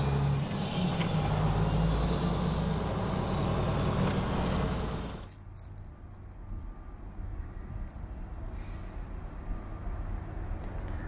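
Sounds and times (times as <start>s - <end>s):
diesel truck engine humming: 0.0s - 5.3s.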